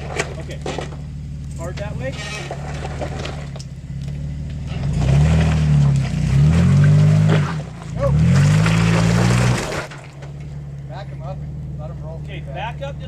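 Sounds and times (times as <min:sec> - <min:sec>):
engine revving hard: 0:04.6 - 0:10.0.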